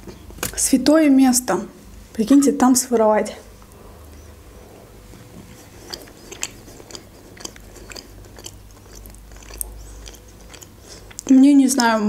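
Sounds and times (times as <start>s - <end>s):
person chewing crunchy snack: 5.1s - 11.3s.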